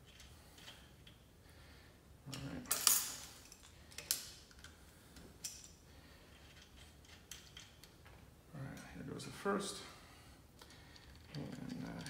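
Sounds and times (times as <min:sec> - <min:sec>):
small metal parts clinking: 0:02.3 - 0:04.7, 0:05.4 - 0:08.0.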